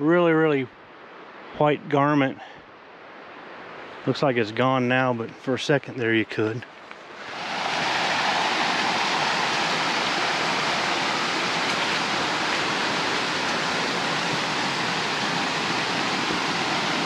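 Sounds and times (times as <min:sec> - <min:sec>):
creek water rushing over rocks: 0:06.3 - 0:17.0.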